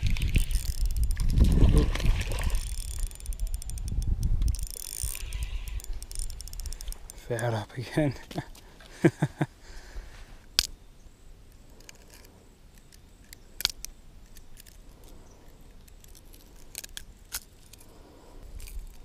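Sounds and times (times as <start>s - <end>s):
metallic clicks of pliers and hooks: 2.6s - 7.4s.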